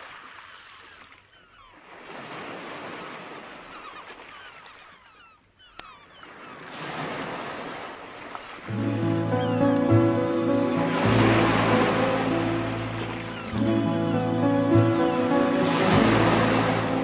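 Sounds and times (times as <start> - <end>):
waves washing in: 1.8 - 4.5, 6.3 - 17.0.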